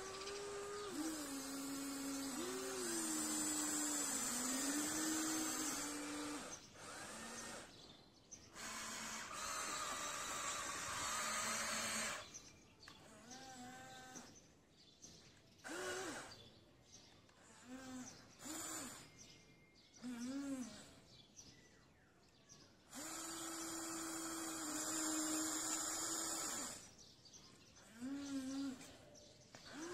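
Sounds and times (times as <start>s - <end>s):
electric gear motors whirring: 0.0s - 14.4s, 15.6s - 16.4s, 17.3s - 19.3s, 20.0s - 21.1s, 22.9s - 27.0s, 27.8s - 29.0s, 29.6s - 29.9s
toy excavator digging sand: 0.0s - 14.4s, 15.7s - 16.4s, 17.4s - 19.2s, 20.0s - 21.0s, 22.9s - 27.0s, 27.8s - 29.0s, 29.6s - 29.9s.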